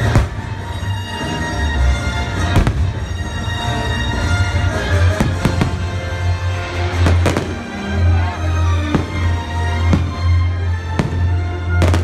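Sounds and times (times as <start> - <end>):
fireworks bursting: 5.0 - 6.3, 6.9 - 12.0.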